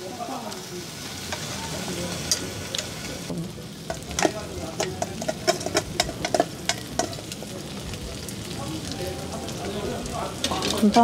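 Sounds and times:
food sizzling on a grill pan: 0.0s - 11.0s
metal tongs clinking on steel: 3.9s - 7.4s.

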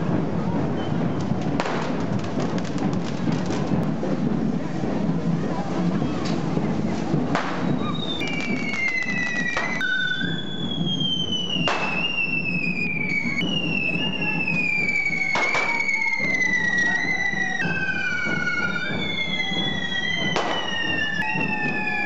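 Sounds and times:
fireworks spitting sparks: 0.7s - 22.0s
sharp firework bangs: 1.4s - 3.8s, 7.3s - 10.3s, 10.9s - 12.4s, 15.3s - 16.0s, 19.6s - 21.6s
high descending whistles: 7.6s - 22.0s.

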